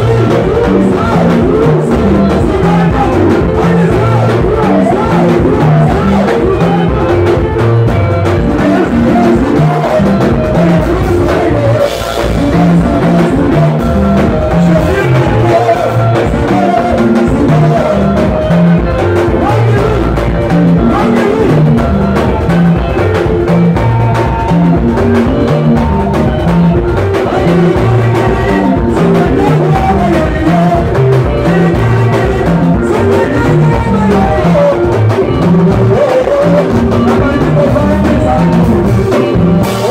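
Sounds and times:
drum kit groove: 0:00.0 - 0:39.9
electric guitars: 0:00.0 - 0:39.9
voices at microphones: 0:00.0 - 0:39.9.

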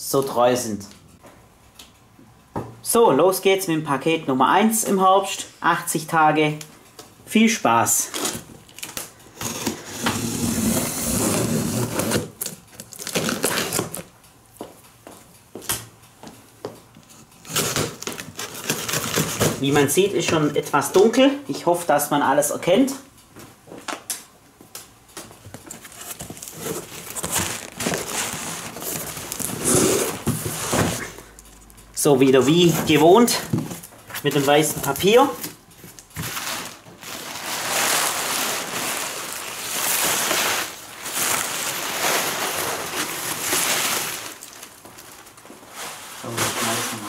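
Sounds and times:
packing paper rustling: 0:07.9 - 0:14.2, 0:17.0 - 0:21.2, 0:25.2 - 0:47.0
cardboard flaps scraping: 0:09.4 - 0:14.0, 0:25.5 - 0:31.2.

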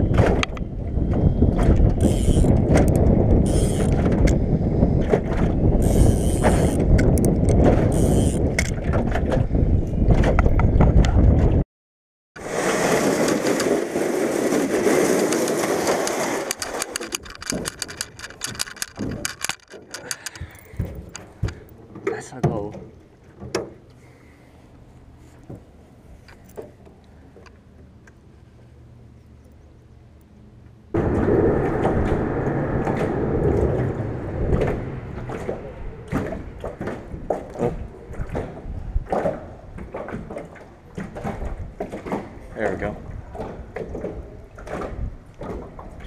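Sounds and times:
wind rumbling on microphone: 0:00.0 - 0:11.6, 0:12.4 - 0:21.7, 0:30.9 - 0:46.0
fishing reel clicking: 0:02.0 - 0:04.0, 0:05.8 - 0:07.3, 0:07.9 - 0:08.7, 0:16.4 - 0:21.3.

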